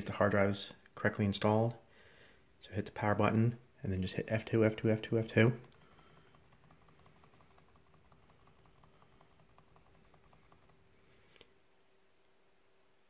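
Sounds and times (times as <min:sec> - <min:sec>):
rapid laptop key tapping: 0:04.7 - 0:11.1.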